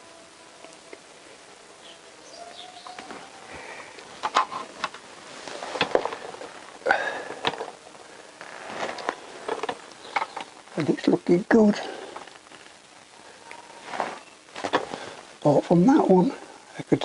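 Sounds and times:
birds chirping: 0.7 - 5.2, 9.0 - 16.2.

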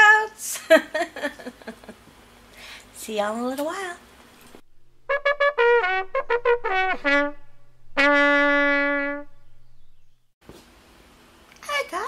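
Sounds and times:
trumpet fanfare: 5.0 - 9.4.

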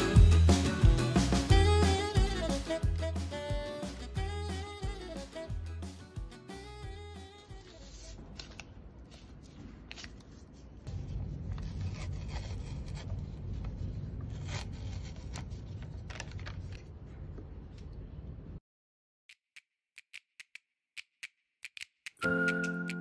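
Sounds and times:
paper tearing and rustling: 7.5 - 16.9.

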